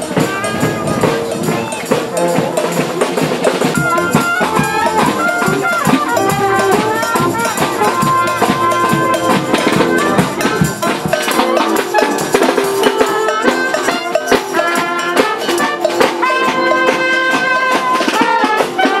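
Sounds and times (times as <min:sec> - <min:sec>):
bass drum and snare beats: 0:00.0 - 0:13.0
marching brass band: 0:00.0 - 0:19.0.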